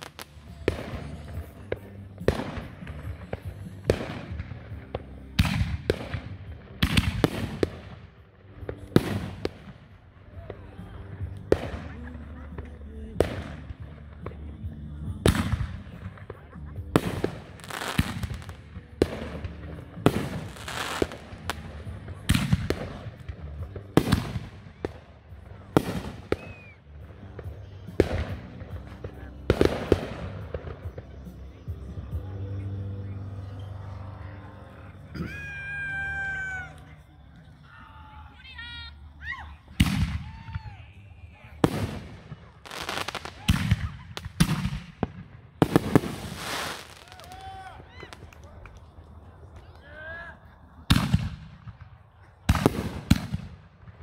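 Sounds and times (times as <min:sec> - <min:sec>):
fireworks bangs: 0:00.0 - 0:37.6, 0:39.6 - 0:48.9, 0:50.8 - 0:54.0
short whistling tone: 0:26.4 - 0:26.8.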